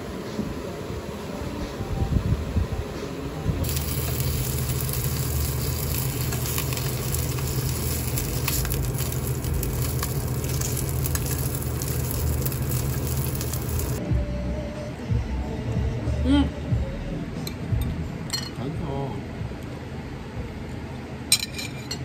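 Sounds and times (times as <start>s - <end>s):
cooktop low hum: 0.0s - 22.0s
dumplings sizzling in oil: 3.6s - 14.0s.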